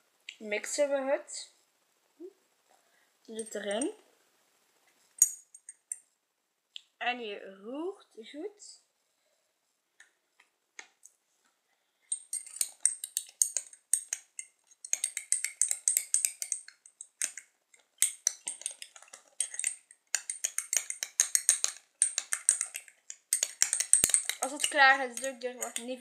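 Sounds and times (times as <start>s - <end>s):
metal spoon clinking in glass jar: 5.2s - 6.0s, 12.1s - 17.4s, 18.0s - 26.0s.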